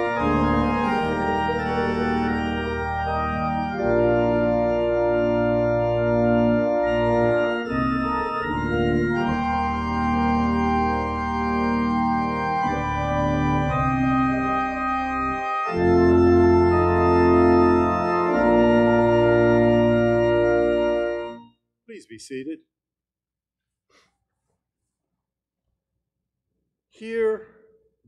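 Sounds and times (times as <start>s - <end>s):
church organ chords: 0.0s - 22.4s.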